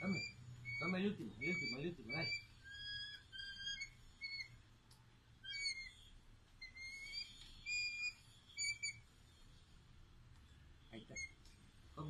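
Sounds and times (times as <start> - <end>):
bird begging calls: 0.0 - 4.6, 5.4 - 9.0.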